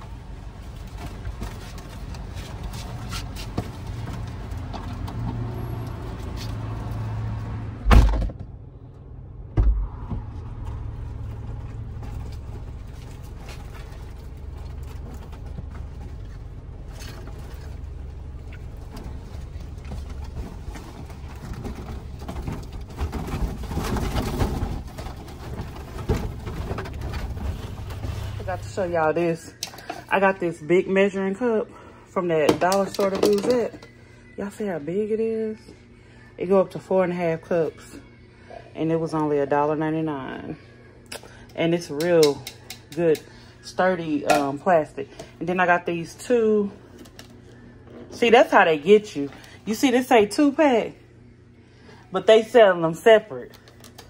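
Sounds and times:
car humming: 0:02.9 - 0:29.2
heavy thumps: 0:09.5 - 0:10.9.

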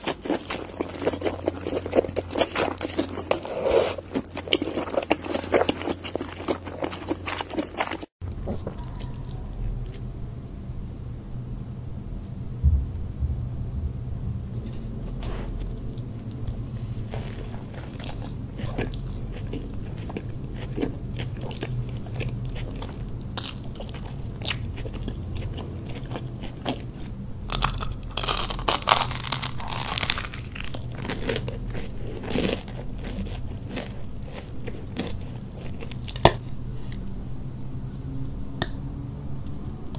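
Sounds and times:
wet chewing: 0:00.0 - 0:10.0, 0:17.1 - 0:36.4
loud crunching of crisp crust: 0:27.5 - 0:36.4
sharp crack of crust tearing: 0:27.6 - 0:30.7.

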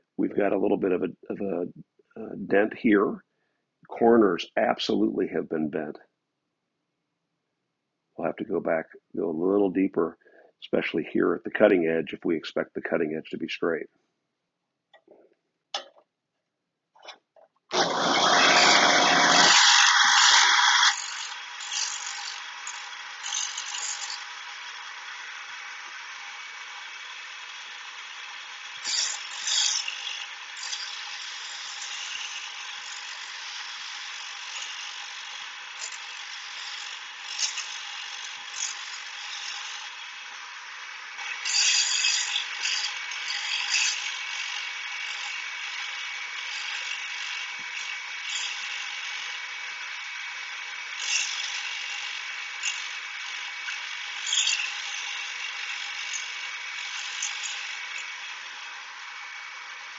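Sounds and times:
steel blade grinding rasp: 0:17.0 - 0:59.9
grinding wheel machine running: 0:17.7 - 0:41.2.

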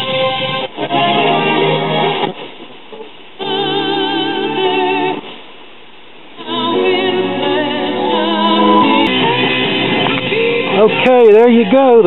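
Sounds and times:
music on radio broadcast: 0:00.0 - 0:05.6, 0:06.3 - 0:12.0
singer with wide vibrato: 0:03.4 - 0:05.3, 0:06.3 - 0:12.0.

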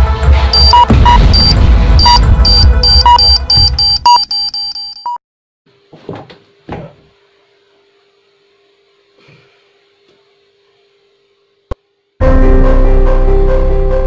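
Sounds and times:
heavy throbbing music: 0:00.0 - 0:03.9
countdown beeps: 0:00.5 - 0:05.2.

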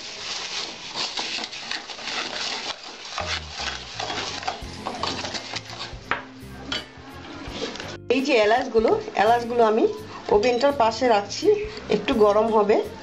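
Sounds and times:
spoon scraping thick paste in pan: 0:00.0 - 0:06.1.

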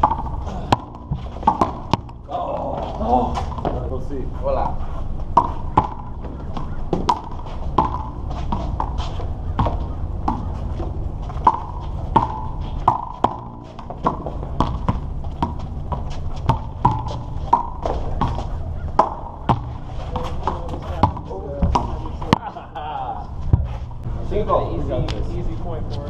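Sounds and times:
rubber ball smacking concrete wall: 0:05.3 - 0:08.2.

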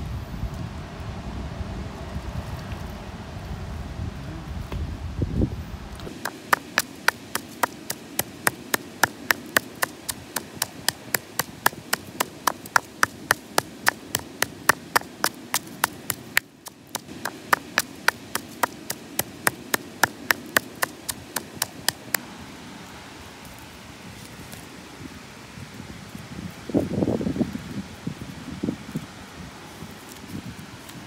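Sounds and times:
pestle pounding in a mortar: 0:06.1 - 0:22.2.

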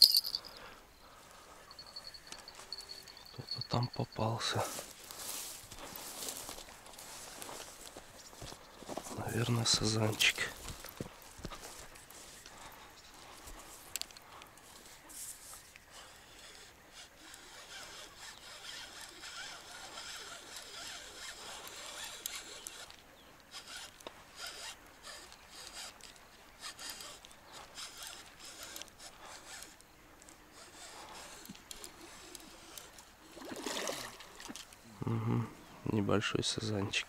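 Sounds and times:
fishing reel whirring and clicking: 0:00.0 - 0:00.7, 0:01.7 - 0:04.2, 0:09.4 - 0:34.8.

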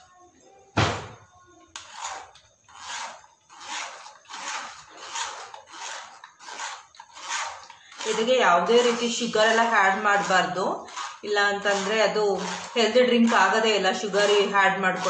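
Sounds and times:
sharp knock: 0:00.8 - 0:01.2
spoon scraping mesh strainer: 0:01.8 - 0:15.0.

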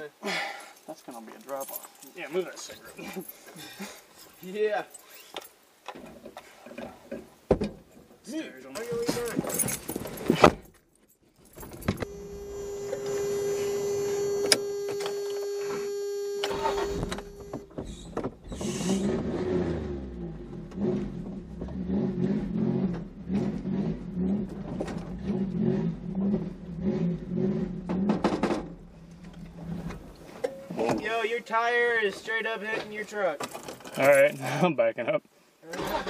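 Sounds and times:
engine whine: 0:12.0 - 0:17.7
truck engine running: 0:12.0 - 0:17.8.

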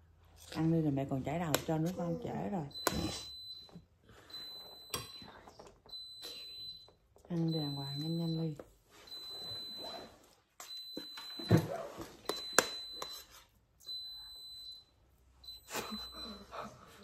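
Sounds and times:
breathy laughter: 0:15.6 - 0:17.0.

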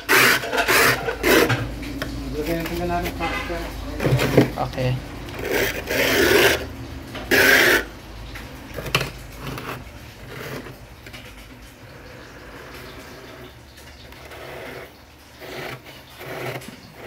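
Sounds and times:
frost scraping: 0:00.0 - 0:07.9.

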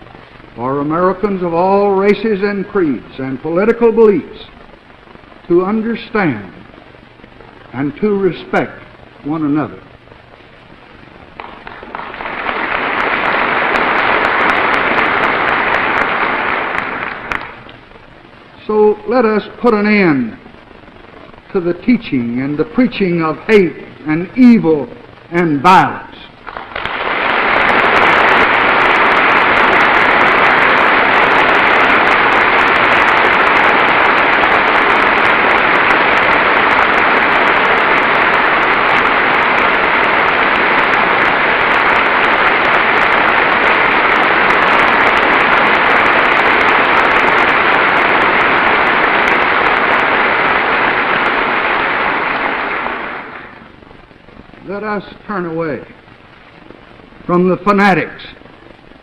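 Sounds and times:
large audience applause: 0:00.0 - 0:06.8, 0:10.7 - 0:17.9, 0:25.8 - 0:53.8.

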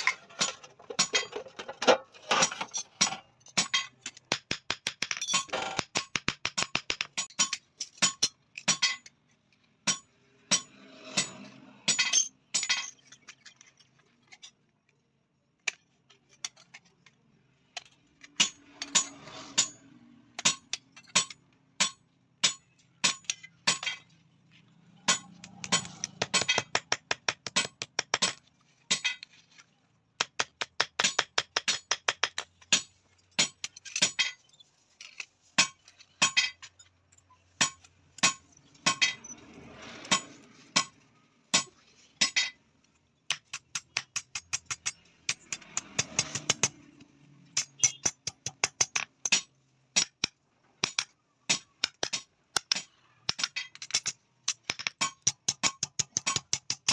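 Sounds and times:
hammer striking metal on anvil: 0:09.8 - 0:12.9.

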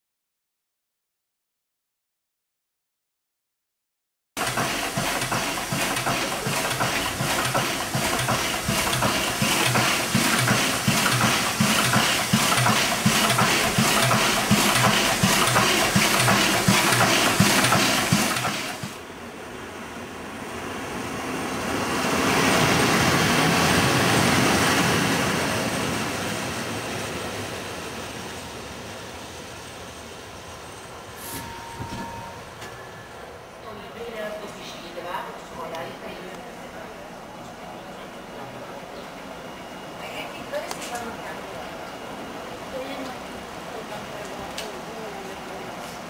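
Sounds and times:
steam locomotive hissing: 0:04.4 - 0:19.0, 0:20.9 - 0:33.3
electric locomotive passing: 0:04.4 - 0:46.0.

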